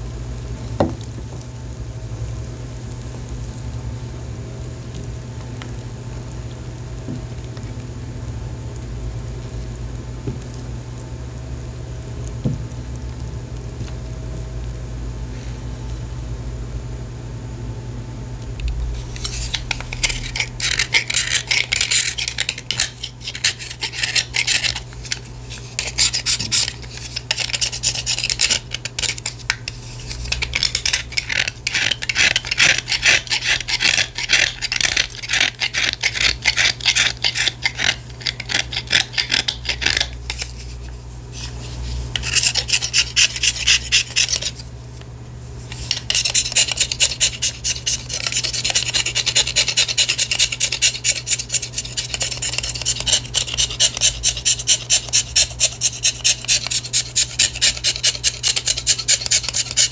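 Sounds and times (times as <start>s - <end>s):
steady low hum: 0.0s - 59.9s
grater rasping clay: 18.6s - 44.7s, 45.6s - 59.9s.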